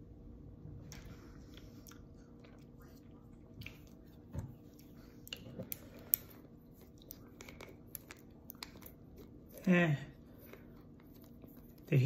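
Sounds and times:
lip smacks and wet clicks: 0:00.8 - 0:09.6.

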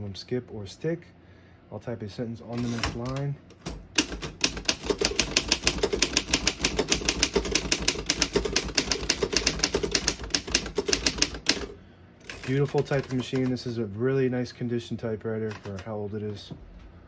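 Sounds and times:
typewriter key clacks: 0:02.6 - 0:13.5.

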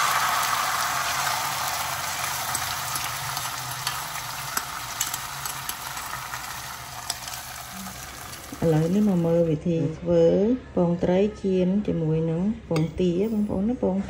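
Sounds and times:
egg mixture sizzling in pan: 0:00.0 - 0:09.5.

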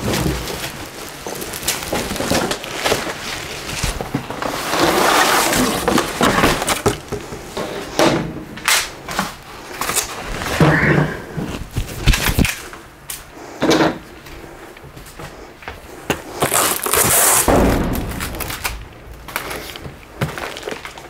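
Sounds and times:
plastic bag crinkling: 0:00.0 - 0:07.1, 0:16.4 - 0:21.0.

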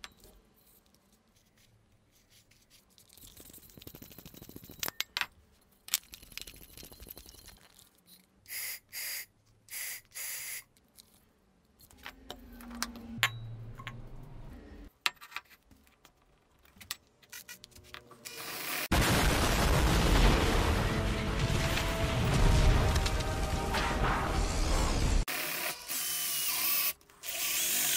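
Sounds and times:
loud explosion: 0:18.9 - 0:25.2
dramatic music: 0:19.8 - 0:25.2.

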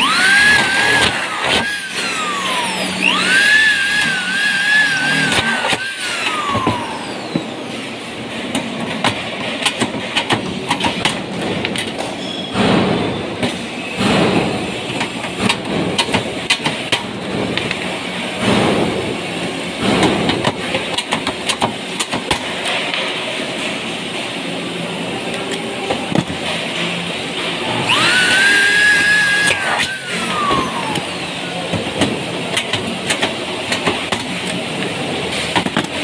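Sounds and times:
cordless drill whine: 0:00.0 - 0:07.5, 0:27.8 - 0:31.4.

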